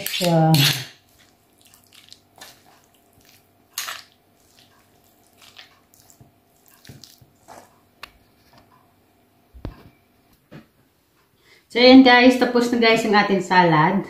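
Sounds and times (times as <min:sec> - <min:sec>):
utensils clinking against bowl: 0:00.0 - 0:01.8
wet squelches of salad: 0:00.0 - 0:08.1.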